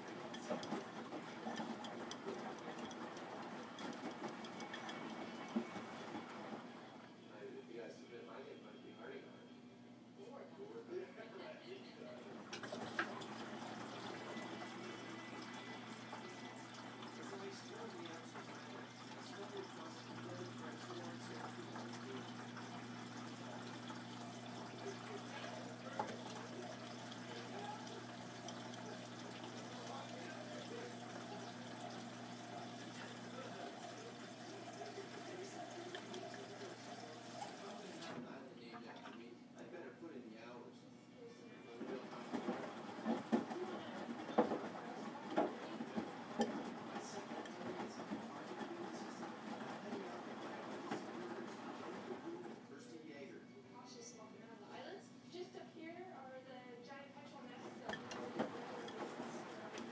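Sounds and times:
washing machine laundry sloshing: 0.0 - 7.0, 12.4 - 38.2, 41.7 - 52.6, 57.6 - 59.9.

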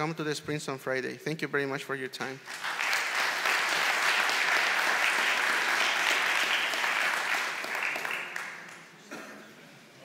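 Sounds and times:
audience applauding: 2.4 - 9.1.

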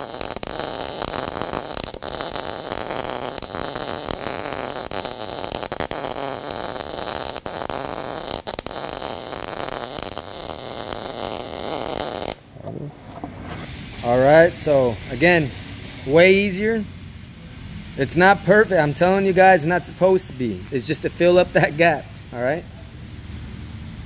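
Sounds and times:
welding arc crackling: 0.0 - 12.6.

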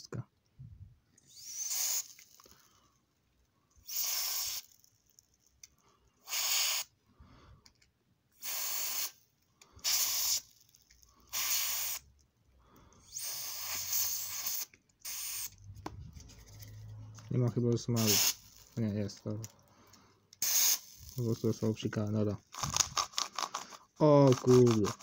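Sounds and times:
spray can hissing: 1.3 - 2.4, 3.8 - 4.8, 6.2 - 6.9, 8.4 - 9.2, 9.8 - 10.5, 11.3 - 12.1, 13.1 - 15.6, 17.9 - 18.8, 20.4 - 21.7.

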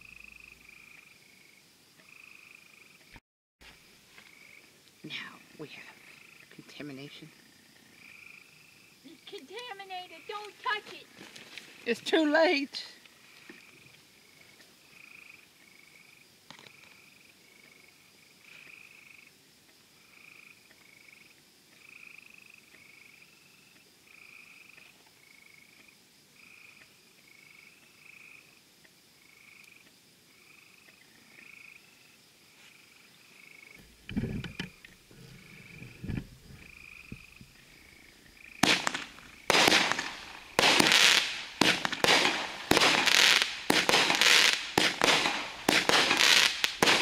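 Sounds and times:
frogs calling: 0.0 - 3.2, 3.8 - 11.2, 11.8 - 47.0
firework bangs: 38.6 - 47.0.

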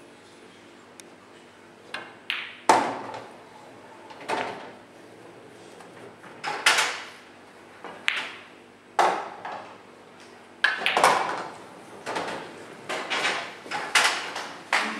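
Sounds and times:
pool balls clacking: 1.9 - 3.4, 4.1 - 4.8, 5.9 - 7.2, 7.8 - 9.8, 10.6 - 14.9
cue striking cue ball: 10.6 - 11.5.

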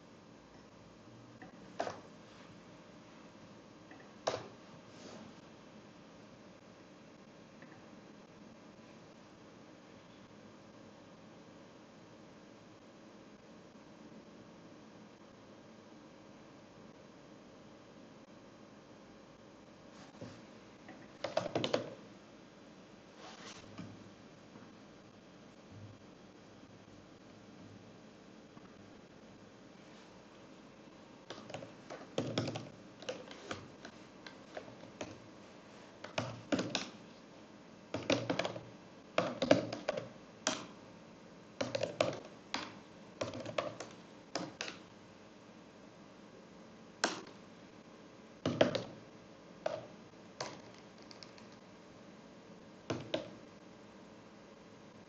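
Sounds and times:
computer keyboard typing: 37.9 - 38.6.

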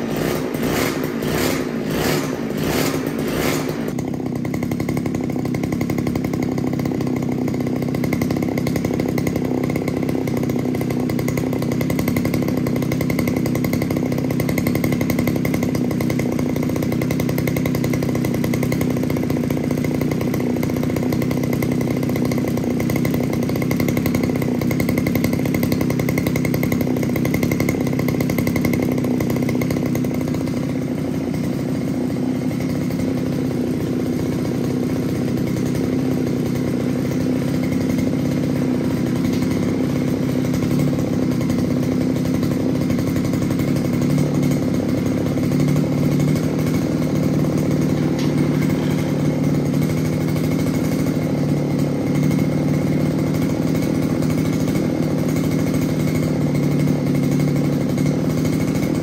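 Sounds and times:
two-stroke engine running: 0.0 - 59.0.

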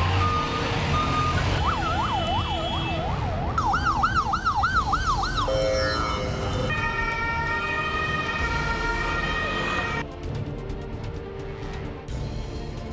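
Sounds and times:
ambulance siren wailing: 0.0 - 10.0.

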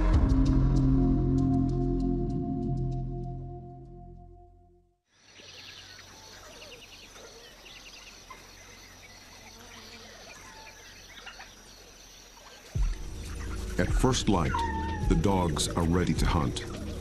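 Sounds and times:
birds chirping and calling: 5.3 - 17.0.

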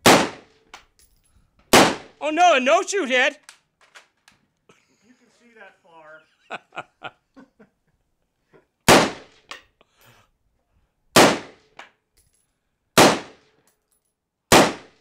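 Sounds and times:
rifle shots: 0.0 - 0.6, 1.7 - 2.2, 8.9 - 9.4, 11.2 - 11.6, 13.0 - 13.4, 14.5 - 15.0.

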